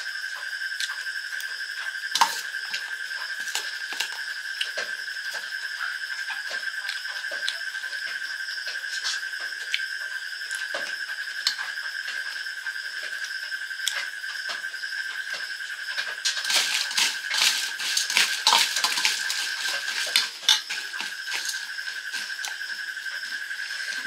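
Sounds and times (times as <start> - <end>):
stirring puffed rice: 2.2 - 2.7, 3.3 - 4.2, 15.9 - 24.0
spoon scraping a steel bowl: 16.2 - 22.6.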